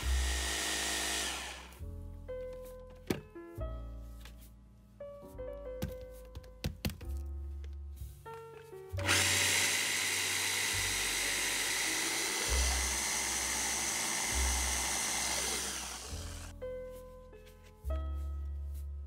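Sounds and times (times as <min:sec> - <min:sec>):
hand blender motor whining: 0:00.0 - 0:01.8, 0:09.0 - 0:16.5
soft background music: 0:00.0 - 0:19.0.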